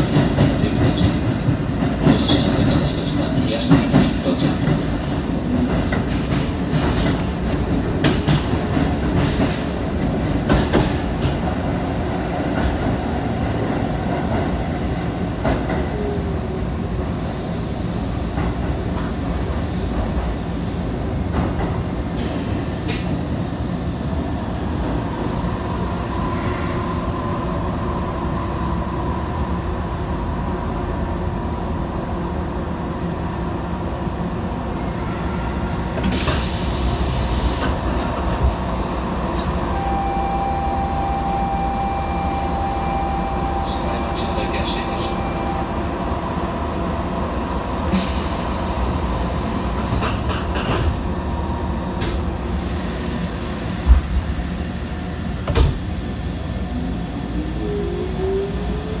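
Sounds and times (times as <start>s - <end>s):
rail clicks: 0.0s - 16.0s, 49.7s - 51.0s
train wheels rumbling on rail: 0.0s - 59.0s.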